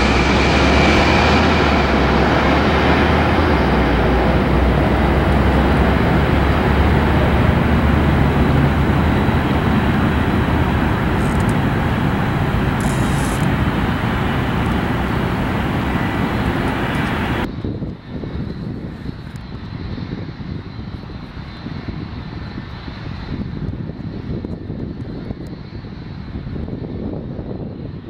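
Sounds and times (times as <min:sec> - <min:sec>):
distant jet taking off: 0:00.0 - 0:17.5
jet airliner landing: 0:00.0 - 0:28.0.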